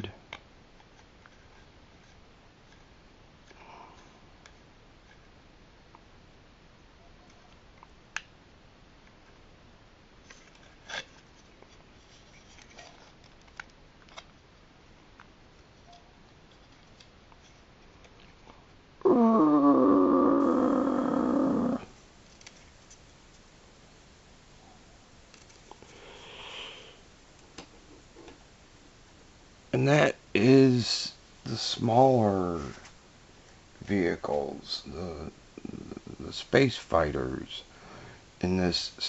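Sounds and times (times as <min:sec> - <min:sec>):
loud wavering toy sound: 0:19.0 - 0:21.9.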